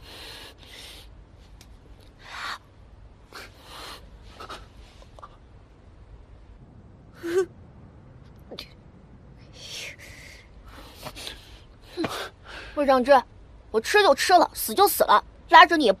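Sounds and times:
sharp breaths and gasps: 0.0 - 1.2, 3.3 - 5.2.

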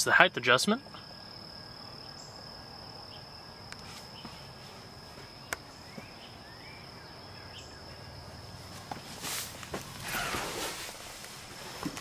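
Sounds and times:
insect trilling: 9.8 - 11.6.

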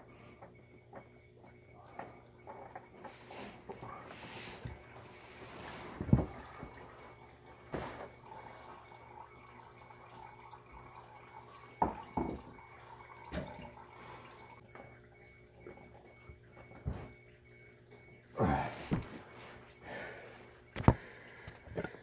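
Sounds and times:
oil dripping into drain pan: 6.0 - 18.0.

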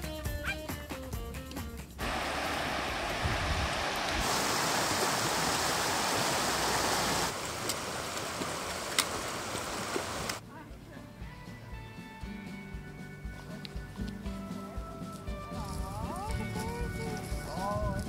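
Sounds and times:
music: 0.0 - 2.0, 10.4 - 18.0
river rushing over stones: 2.0 - 10.4.

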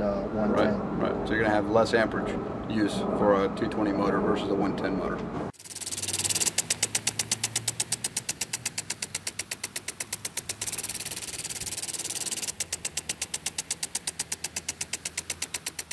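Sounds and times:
rapid even ticking: 5.6 - 15.9.

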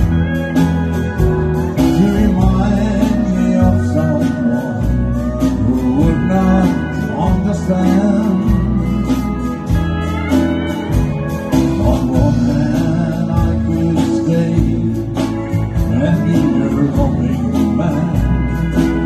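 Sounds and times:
live country band: 0.0 - 19.0
pedal steel guitar: 0.0 - 19.0.

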